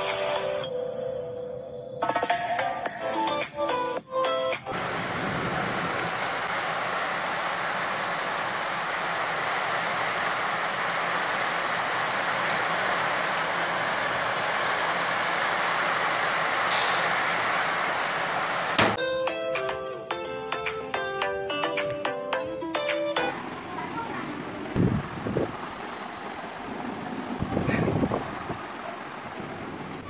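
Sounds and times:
steady hiss: 4.8 - 19.0.

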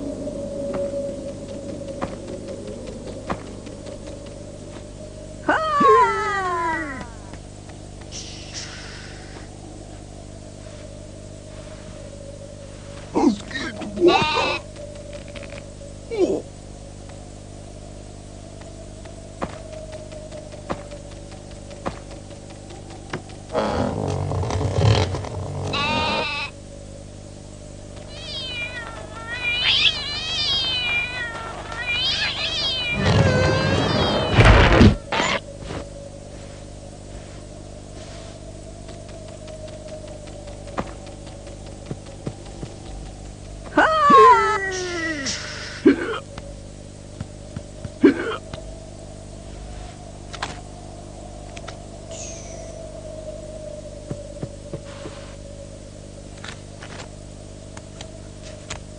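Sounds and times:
steady hum: 0.0 - 58.9
squeaky cartoon meow calls: 25.7 - 26.5, 28.1 - 34.7.

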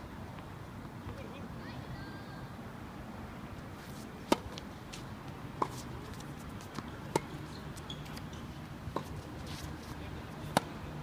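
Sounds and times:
tennis ball hitting racket: 4.2 - 4.7, 5.6 - 10.9.

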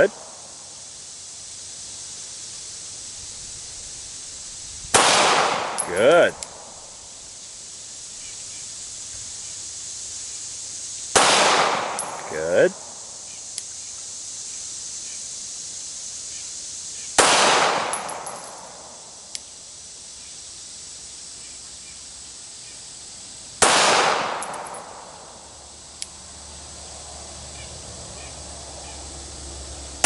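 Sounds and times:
handgun shots with echo: 5.0 - 6.3, 11.2 - 12.3, 17.2 - 18.8, 23.6 - 25.0.

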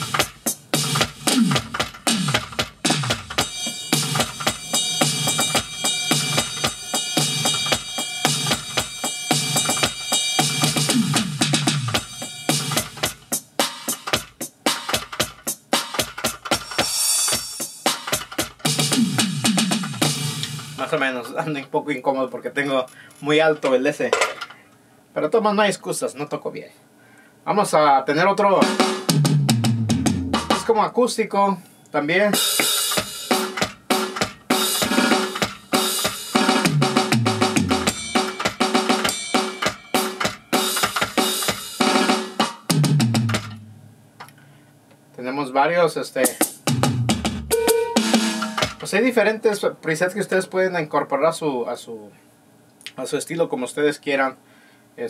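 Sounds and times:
electronic drum pad beat: 0.0 - 21.0, 28.6 - 30.8, 32.4 - 44.0, 46.3 - 48.9
tom fill: 46.2 - 48.9.

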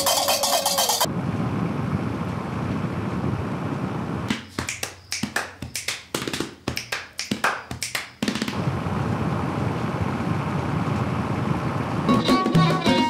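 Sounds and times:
road and wind rush from vehicle: 1.0 - 5.8, 8.5 - 13.0.

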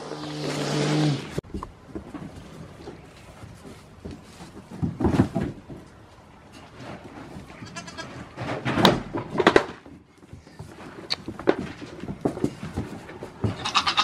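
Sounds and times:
hooves on wooden floor: 1.4 - 14.0
goats bleating: 7.6 - 8.2, 13.5 - 14.0.

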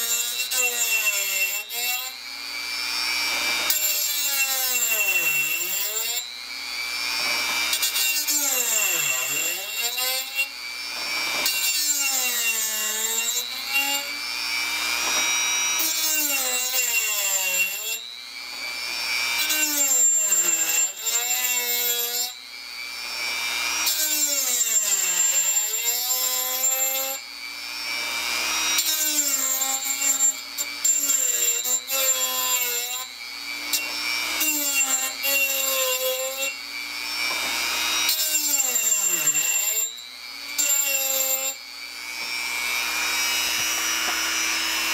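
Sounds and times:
rotary tool motor whine: 0.0 - 44.9
grinding stone on steel: 3.3 - 6.4, 7.1 - 14.2, 14.8 - 22.4, 28.7 - 33.1, 33.7 - 41.6, 42.2 - 44.9.

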